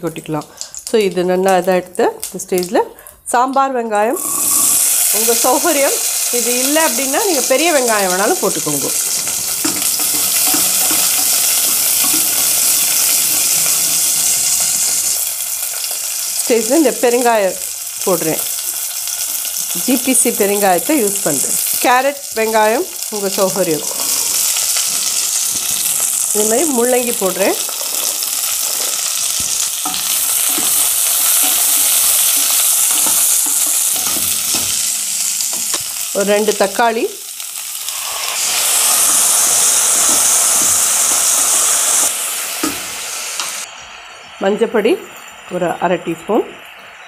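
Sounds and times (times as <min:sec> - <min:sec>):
onions sizzling in oil: 0:00.0 - 0:47.0
spatula scraping and knocking pot: 0:09.2 - 0:12.8.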